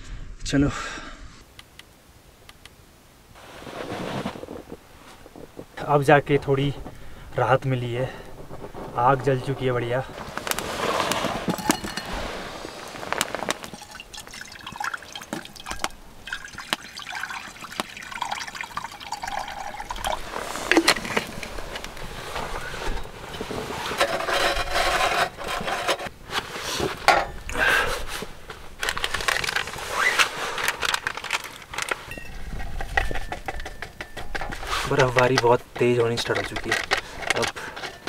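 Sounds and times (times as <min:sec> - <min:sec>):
wood fire crackling: 0:03.3 - 0:38.0
camping gear rustling and knocking: 0:03.4 - 0:38.0
water pouring into pan: 0:13.6 - 0:21.4.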